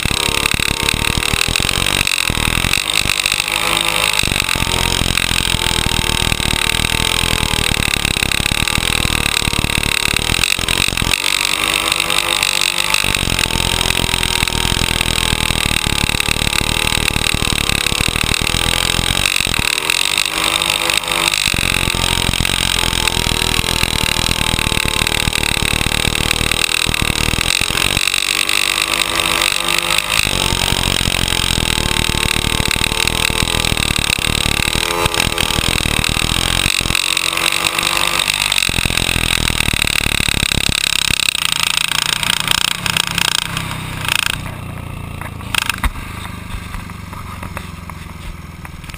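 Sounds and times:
motorcycle engine racing: 0.0s - 48.9s.

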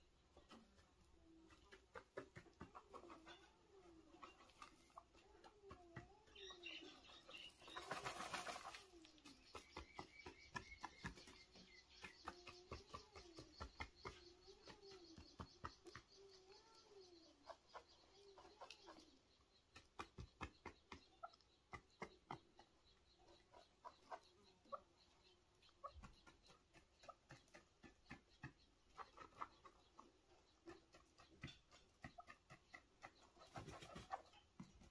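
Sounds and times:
scratching in gravelly dirt: 6.3s - 19.1s
bird wings fluttering: 7.6s - 9.1s.

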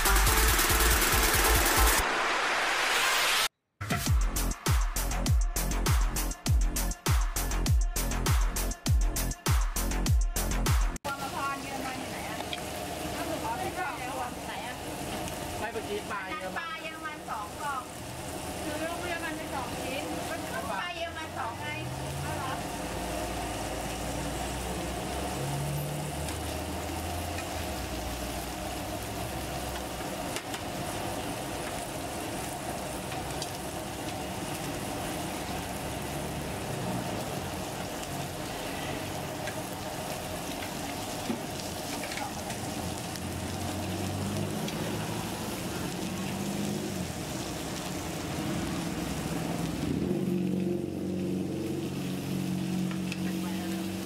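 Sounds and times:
passing traffic hum: 11.0s - 54.0s
steaks sizzling on a griddle: 11.1s - 54.0s.

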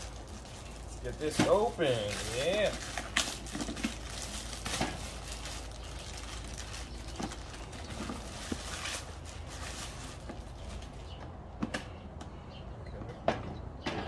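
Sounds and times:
plastic bag crinkling: 0.0s - 11.1s.

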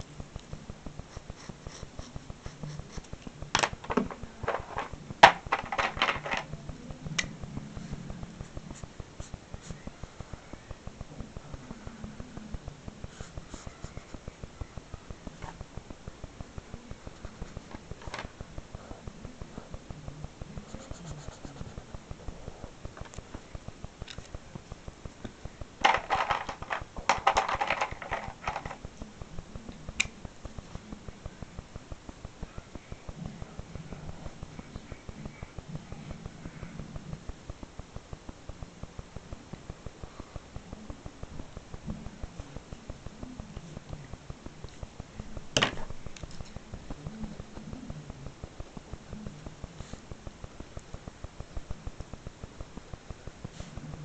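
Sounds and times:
low hum: 0.0s - 54.0s
markers clicking and knocking: 25.8s - 28.8s.

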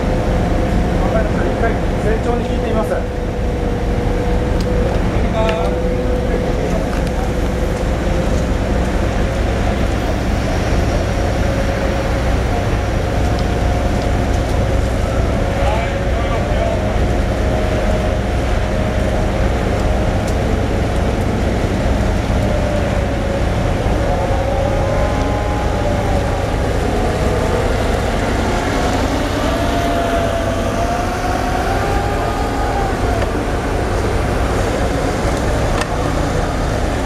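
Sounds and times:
forklift whine wavering in pitch: 0.0s - 37.0s
low machinery drone: 0.0s - 37.0s.

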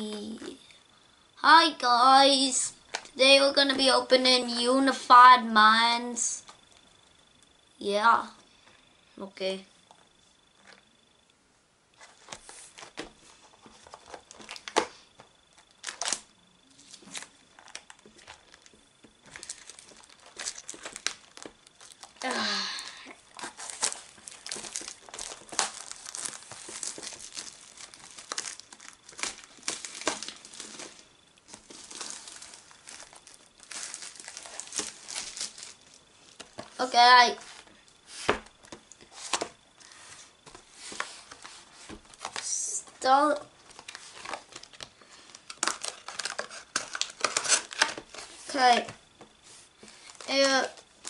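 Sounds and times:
plastic shrink wrap tearing: 15.8s - 22.3s, 23.3s - 36.4s, 43.7s - 48.8s.

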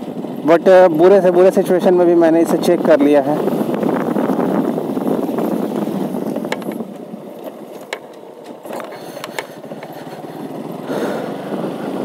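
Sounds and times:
motorcycle engine running: 0.0s - 12.0s
motorcycle rattling on bumps: 0.0s - 12.0s.

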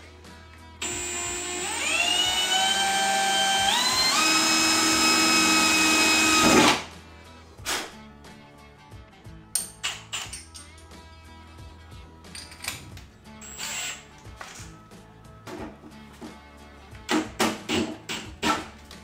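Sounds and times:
cordless drill drilling sheet metal: 0.8s - 6.9s, 13.4s - 14.1s.

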